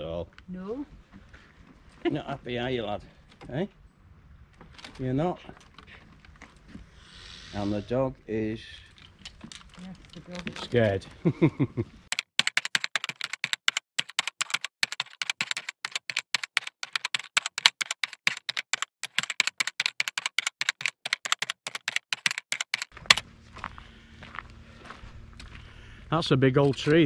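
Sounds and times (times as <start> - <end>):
rapid sharp clicks: 12.1 - 23.2.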